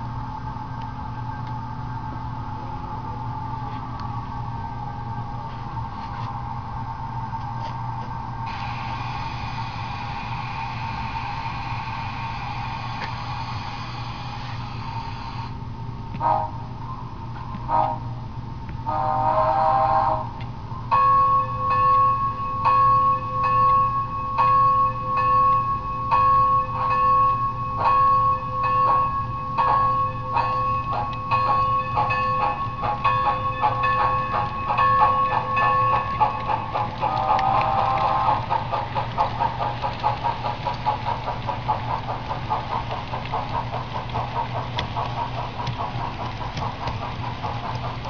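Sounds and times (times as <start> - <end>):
model train hum and whine: 0.0 - 48.0
bright hiss: 8.4 - 15.6
model train bell ringing: 20.9 - 41.9.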